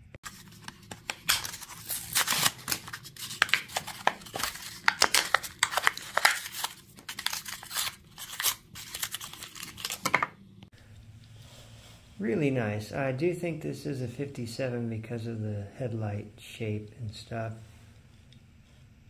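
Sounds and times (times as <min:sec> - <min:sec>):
cardboard ripping: 0:00.2 - 0:10.3
plastic crinkling: 0:00.2 - 0:10.4.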